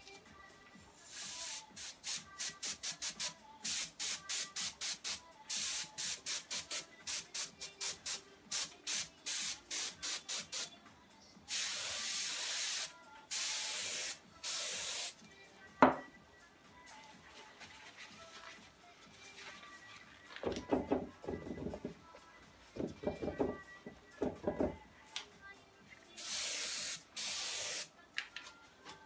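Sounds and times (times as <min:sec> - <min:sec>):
compressed air can hissing: 0:01.1 - 0:10.7, 0:11.5 - 0:15.2, 0:26.2 - 0:27.9.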